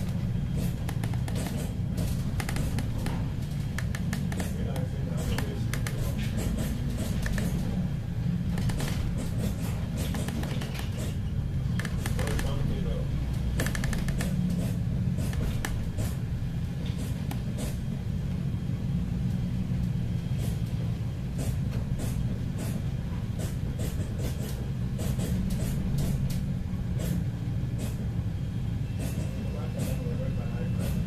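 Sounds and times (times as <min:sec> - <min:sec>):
sharp ticks and taps: 0:02.4 - 0:06.0.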